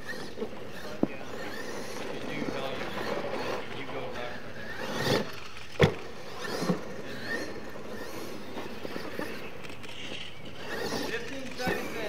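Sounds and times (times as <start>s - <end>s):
toy truck motor and tyres on dirt: 0.0s - 12.0s
toy truck landing thump: 5.7s - 6.0s.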